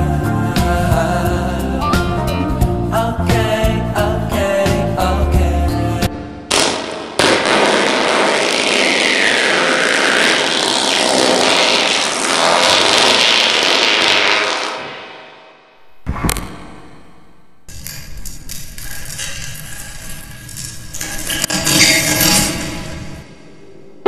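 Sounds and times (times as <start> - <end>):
brief sharp burst: 6.5 - 17.2
cartoon fart sound effect: 7.2 - 15.4.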